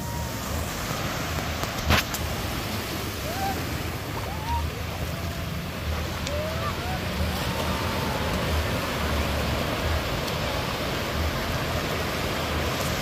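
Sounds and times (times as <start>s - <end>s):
surf washing on beach: 0.0s - 13.0s
faint rising shouts: 3.0s - 9.2s.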